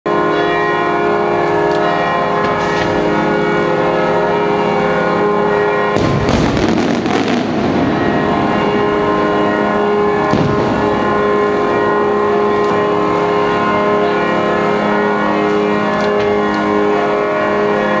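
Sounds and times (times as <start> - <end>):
sustained chord of held tones: 0.1 - 18.0
firework shells bursting: 6.0 - 7.8.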